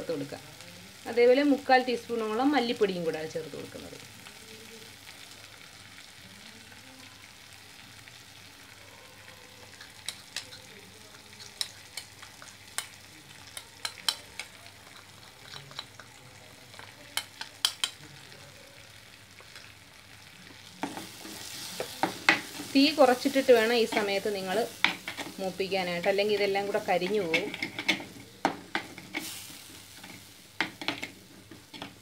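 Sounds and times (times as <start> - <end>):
spices frying in oil: 0.0 - 32.0
steel spoon stirring and scraping: 9.7 - 18.0, 20.8 - 32.0.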